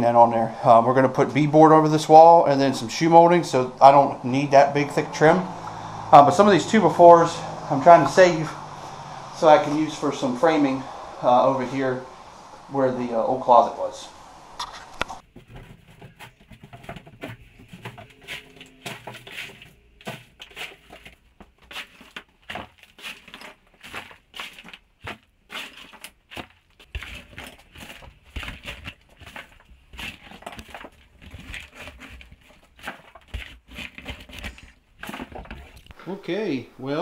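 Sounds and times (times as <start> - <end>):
snow shovel scraping floor: 14.6 - 35.8
debris chunks clattering: 15.2 - 36.0.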